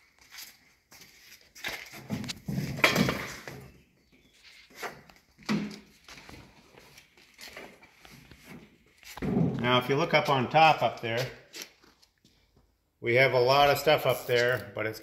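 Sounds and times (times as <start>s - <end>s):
footsteps on concrete floor: 0.0s - 2.7s, 4.3s - 12.7s.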